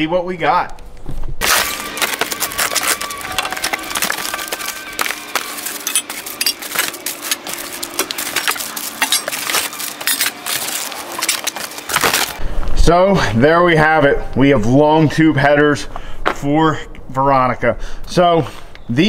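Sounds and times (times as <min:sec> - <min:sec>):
cardboard crackling and tearing: 0:01.4 - 0:12.4
metal pipes clinking: 0:01.4 - 0:12.4
plastic crinkling: 0:01.4 - 0:12.4.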